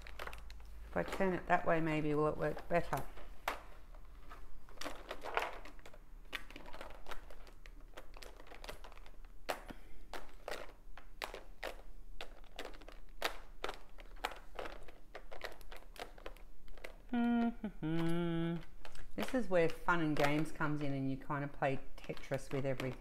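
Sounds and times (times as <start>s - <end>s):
plastic containers clicking: 0.0s - 1.8s, 4.7s - 17.0s, 18.0s - 21.1s, 22.0s - 23.0s.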